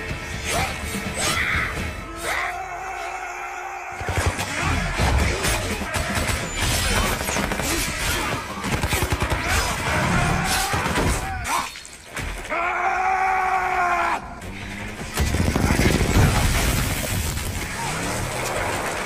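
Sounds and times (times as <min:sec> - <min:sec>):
film music score: 0:00.0 - 0:19.0
crashes and smashing impacts: 0:15.0 - 0:19.0.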